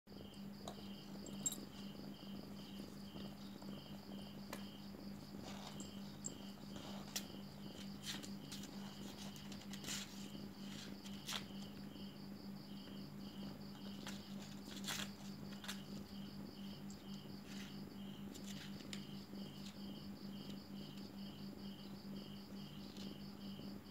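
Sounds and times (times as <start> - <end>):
insects chirping: 0.1 - 23.9
low steady hum: 0.1 - 23.9.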